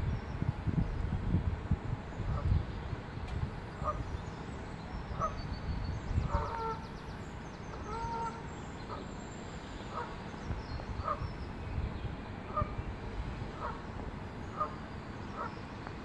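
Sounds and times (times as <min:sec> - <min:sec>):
wind rumble on microphone: 0:00.0 - 0:09.0, 0:09.9 - 0:16.0
small birds chirping: 0:02.2 - 0:16.0
waterfowl honking: 0:06.3 - 0:06.8, 0:07.8 - 0:09.0, 0:09.9 - 0:10.2, 0:12.5 - 0:12.8, 0:13.6 - 0:13.8, 0:14.5 - 0:14.8.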